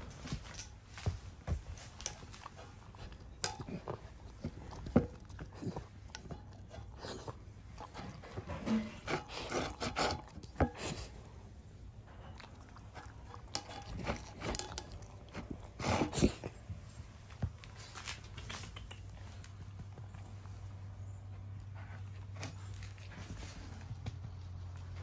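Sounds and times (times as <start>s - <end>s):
dog crunching and licking food: 0.0s - 20.6s.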